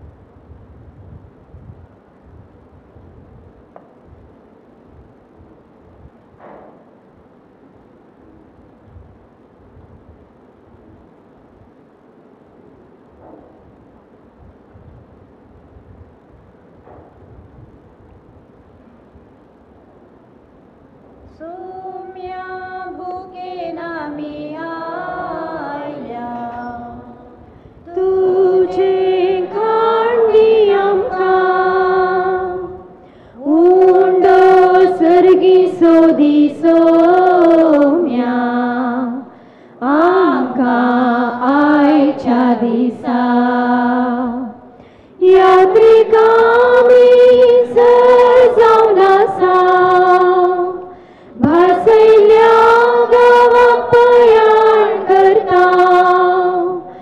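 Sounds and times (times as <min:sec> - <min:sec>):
woman singing a hymn: 0:21.3 - 0:57.0.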